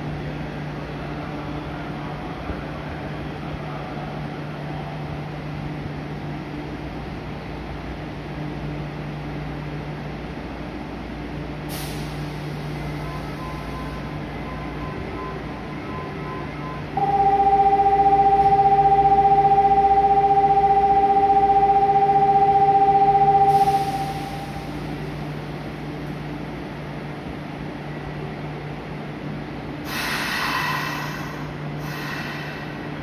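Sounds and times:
train equipment humming: 0.0s - 33.0s
loud steady electronic tone: 13.0s - 25.1s.

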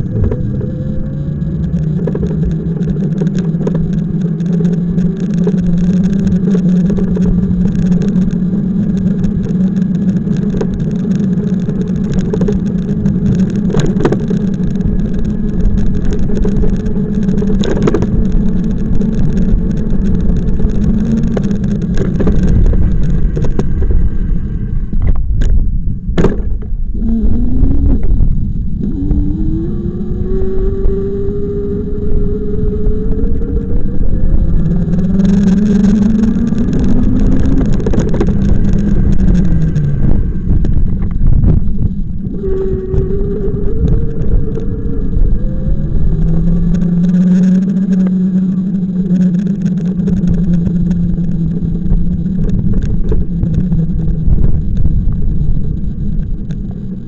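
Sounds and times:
motorbike motor drone: 0.0s - 57.0s
road rumble: 0.0s - 57.0s.

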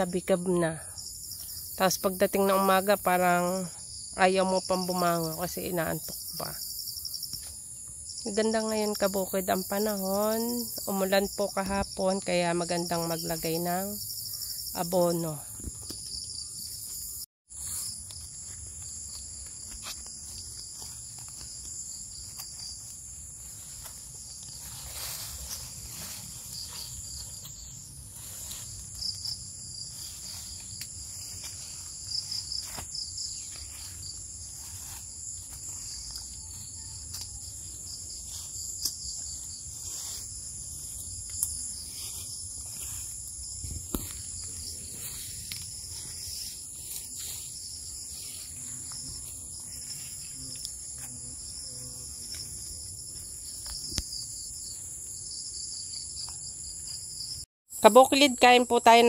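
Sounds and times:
insects chorus: 0.0s - 59.0s
rustles and steps through vines: 17.5s - 51.2s.

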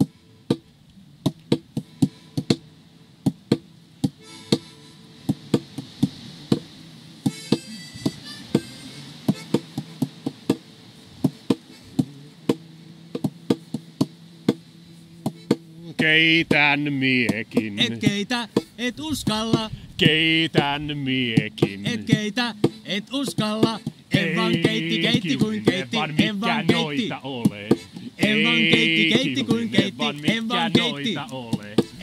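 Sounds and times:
low steady drone: 24.1s - 32.0s.

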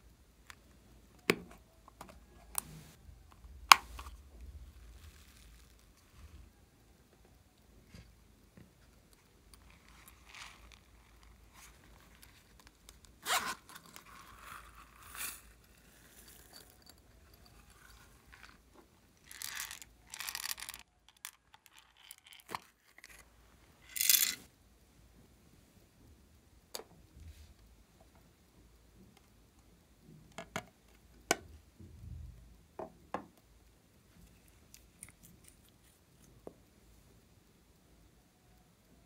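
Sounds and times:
zipper being pulled: 13.2s - 15.8s.

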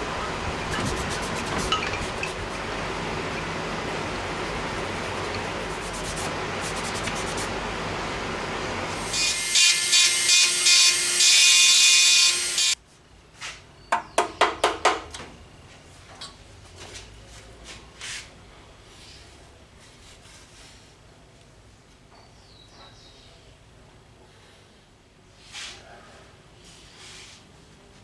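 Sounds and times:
steady hiss with low hum: 0.0s - 9.0s
rotary tool grinding steel: 9.0s - 12.8s.

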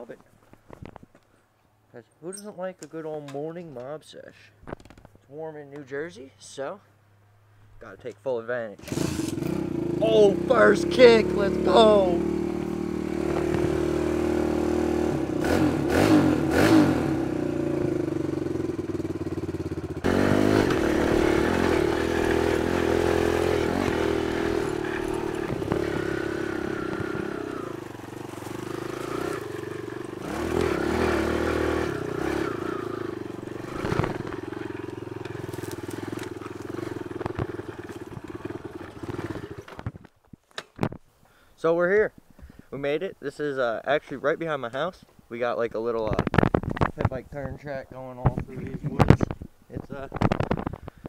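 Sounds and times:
small motorcycle engine revving: 8.8s - 40.0s.

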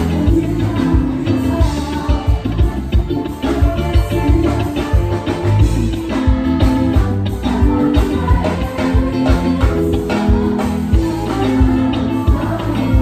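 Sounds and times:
electric guitar: 0.0s - 13.0s
live band playing: 0.0s - 13.0s.

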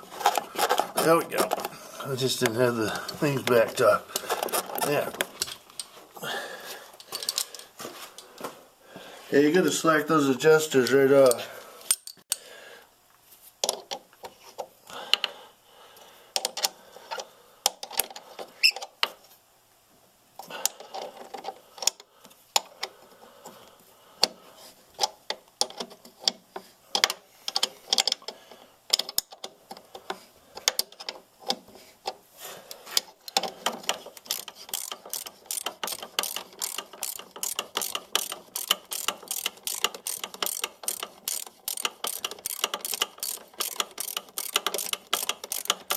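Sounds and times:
socket ratchet clicking: 33.3s - 45.9s.

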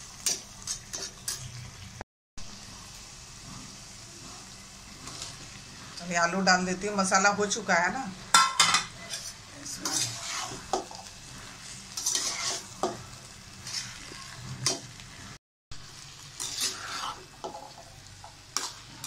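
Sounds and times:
masala sizzling: 0.0s - 19.0s
steel spatula scraping pan: 8.6s - 15.3s, 16.3s - 19.0s.

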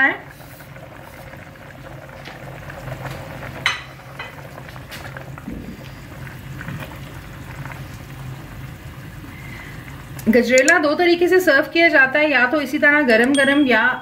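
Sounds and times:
thick pudding bubbling: 0.0s - 10.4s
steady low hum: 3.9s - 10.8s.

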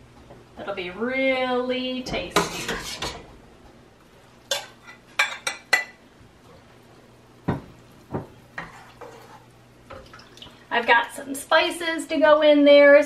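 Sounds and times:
metal cookware clinking: 4.5s - 6.0s.

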